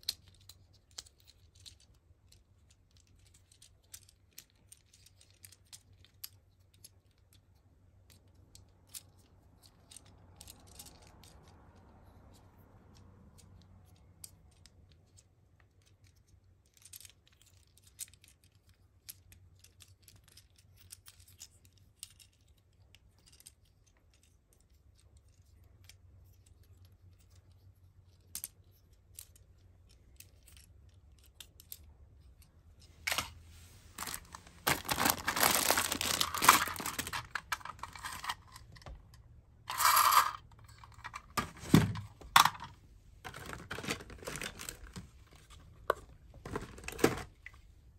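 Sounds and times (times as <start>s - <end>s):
toys and packaging handled on floor: 24.9s - 47.9s
plastic toy parts clicking: 34.0s - 45.0s.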